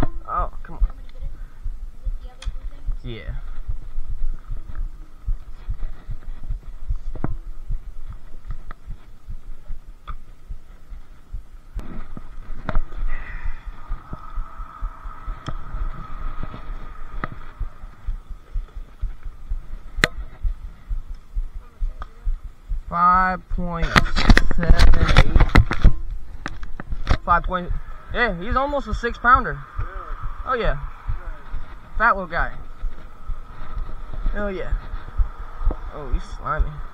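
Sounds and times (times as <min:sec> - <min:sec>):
faint steady tone: 0:00.0 - 0:25.0, 0:25.7 - 0:36.9
camera handling thumps and rubbing: 0:11.8 - 0:13.1, 0:23.9 - 0:27.3.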